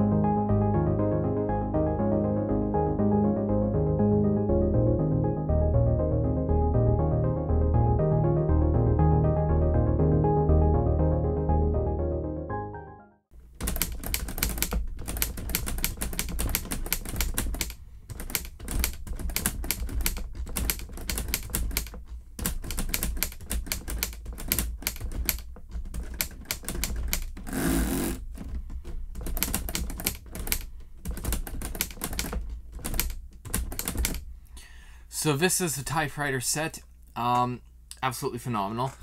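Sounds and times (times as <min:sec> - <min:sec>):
plastic typewriter keys clacking: 0:13.6 - 0:27.5, 0:28.2 - 0:34.2.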